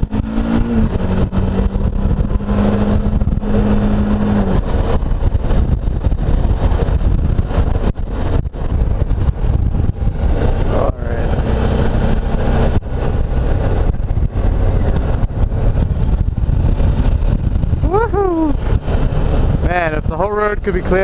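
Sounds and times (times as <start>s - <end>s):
motorcycle engine running: 0.0s - 21.0s
wind noise on microphone: 0.0s - 21.0s.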